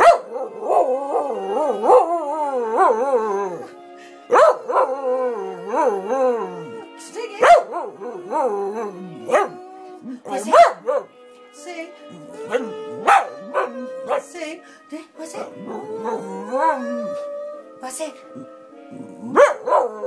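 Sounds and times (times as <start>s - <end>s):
dog howling: 0.0s - 11.1s, 12.2s - 14.4s, 15.5s - 17.8s.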